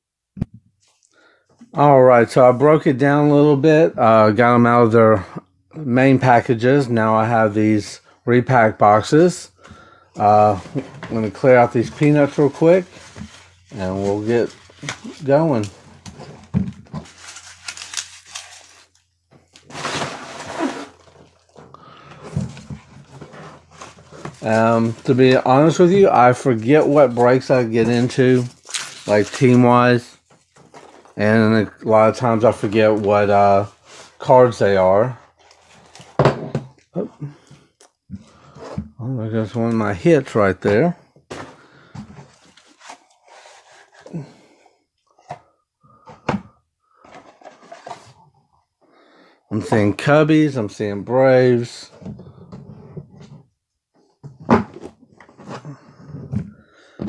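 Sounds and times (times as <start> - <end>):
packing peanuts rustling: 10.2 - 21.5, 23.8 - 30.1.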